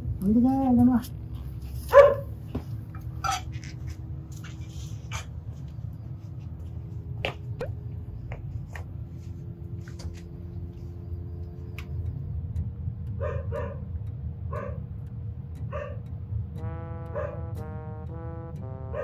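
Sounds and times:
steady low hum: 0.0s - 19.0s
dog barking: 1.9s - 2.4s, 13.2s - 13.9s, 14.5s - 14.8s, 15.7s - 16.0s, 17.1s - 17.5s.

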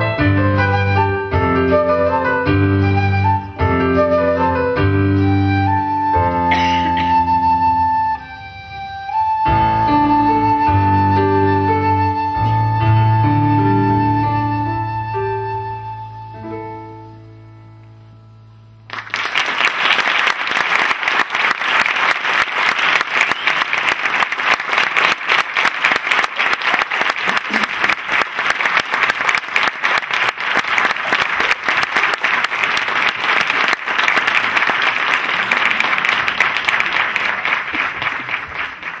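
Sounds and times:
flute and keyboard note: 0.0s - 17.7s
audience applauding: 18.9s - 39.0s.

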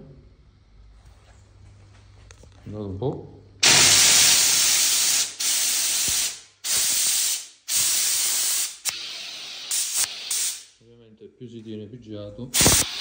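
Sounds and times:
steam gun hissing bursts: 3.6s - 10.8s, 12.6s - 13.0s.

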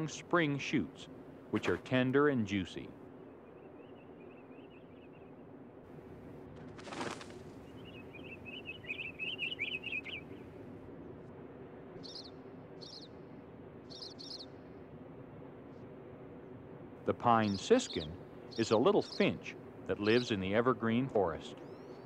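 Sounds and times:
faint steady hum: 0.0s - 22.0s
wing flutter: 6.5s - 7.9s
finch twittering warble: 7.6s - 10.5s, 12.0s - 13.2s, 13.9s - 14.5s, 17.2s - 22.0s.

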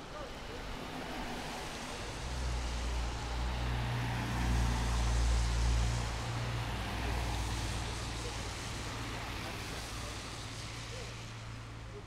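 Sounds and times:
street noise: 0.0s - 12.0s
vehicle engine passing by: 2.5s - 10.0s.

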